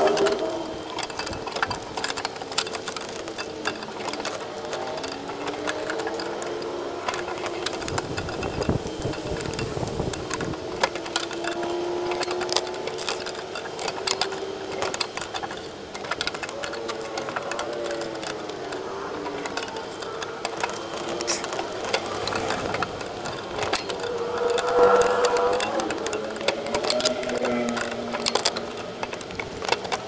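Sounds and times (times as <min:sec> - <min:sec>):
wrench clicking and scraping metal: 0:00.0 - 0:30.0
faint wavering tone: 0:23.4 - 0:26.7.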